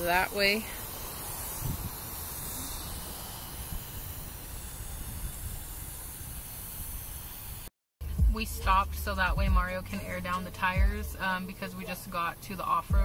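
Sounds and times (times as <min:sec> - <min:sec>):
air hissing out of tire valve: 0:00.0 - 0:07.7.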